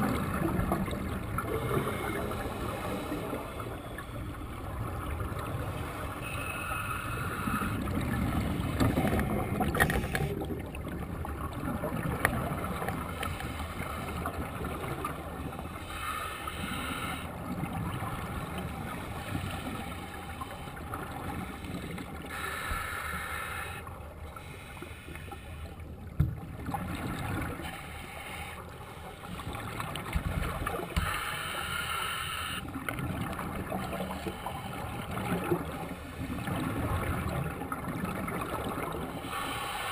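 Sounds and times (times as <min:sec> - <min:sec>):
bubbling regulator breaths: 0:05.7 - 0:10.4, 0:30.8 - 0:32.7, 0:38.4 - 0:39.9.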